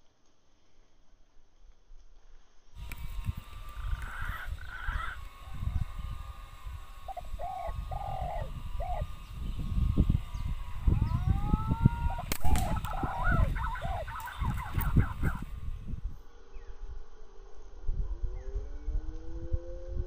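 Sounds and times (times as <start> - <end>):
birds calling: 2.8 - 16.0
rising whistled call: 7.1 - 9.5, 10.3 - 15.5
air rifle shot: 12.2 - 13.1.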